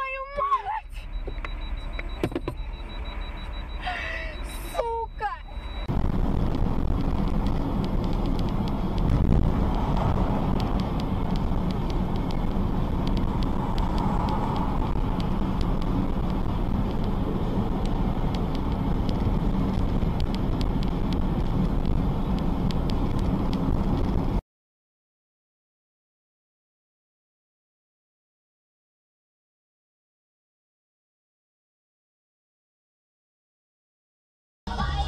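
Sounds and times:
car cabin road noise: 0.0s - 24.4s, 34.7s - 35.0s
light ticks: 7.2s - 24.1s.

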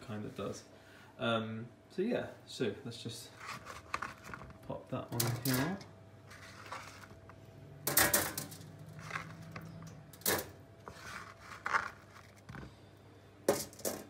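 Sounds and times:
pieces dropped onto foil tray: 7.8s - 10.6s, 13.5s - 14.0s.

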